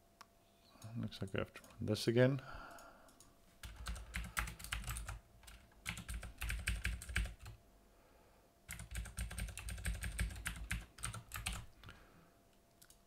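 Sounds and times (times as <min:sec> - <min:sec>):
computer keyboard typing: 0:03.1 - 0:07.6, 0:08.7 - 0:11.9.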